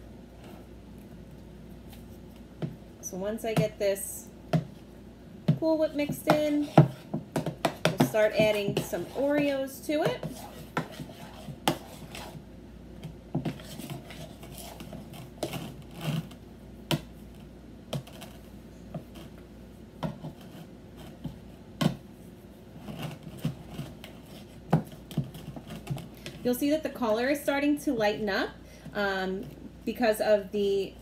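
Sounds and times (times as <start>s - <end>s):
spoon stirring in plastic bowl: 5.5s - 12.4s, 13.4s - 16.3s.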